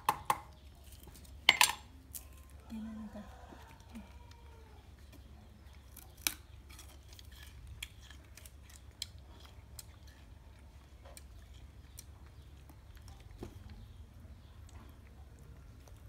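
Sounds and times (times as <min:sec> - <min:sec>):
chewing: 0:02.0 - 0:16.0
sugarcane snapping and crunching: 0:05.8 - 0:10.2.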